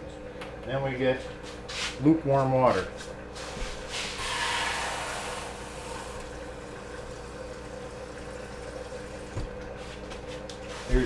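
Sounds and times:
tap water filling a cup: 5.8 - 11.0.

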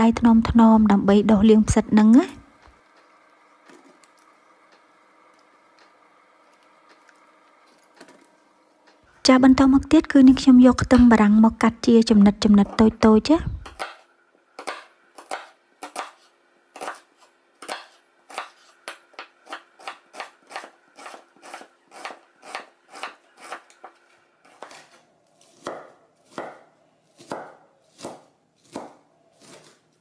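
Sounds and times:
knife chopping on wooden board: 13.6 - 14.0, 14.6 - 29.8.

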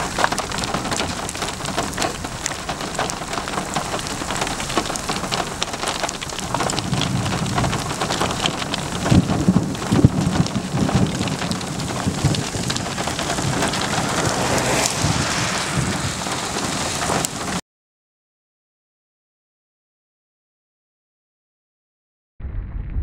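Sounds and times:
rain drops hitting surface: 0.0 - 17.6
thunder rumbling: 0.0 - 17.6, 22.4 - 23.0.

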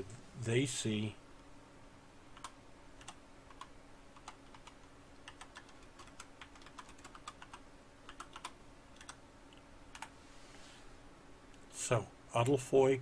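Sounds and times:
keyboard keystrokes: 2.4 - 9.2.

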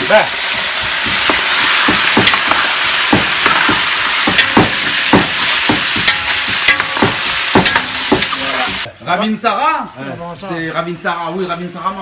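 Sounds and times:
chicken sizzling in hot oil: 0.0 - 8.9
spoon knocking and scraping pot: 0.8 - 8.9.

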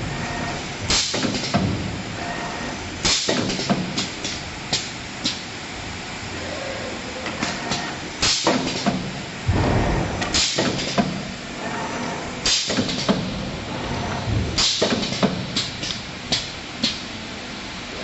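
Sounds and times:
machine clicking and clunking: 0.9 - 1.9, 3.0 - 5.4, 7.2 - 11.8, 12.4 - 17.1
heavy low thud: 9.4 - 10.3, 14.2 - 14.6.

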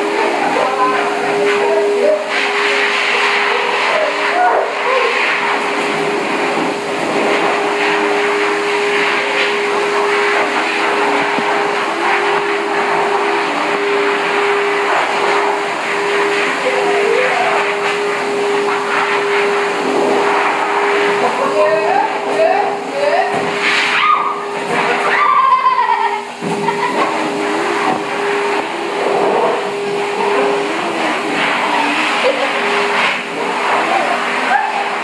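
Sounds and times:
blow dryer air rush and motor whine: 0.0 - 35.0.

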